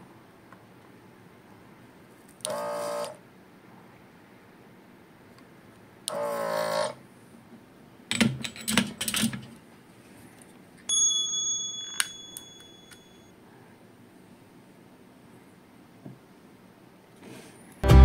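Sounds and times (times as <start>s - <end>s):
bell-like ding: 10.9s - 13.3s.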